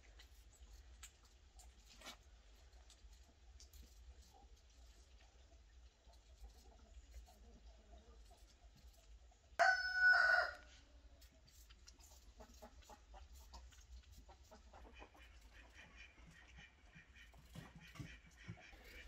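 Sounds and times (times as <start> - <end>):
rooster crowing: 9.6 - 10.7.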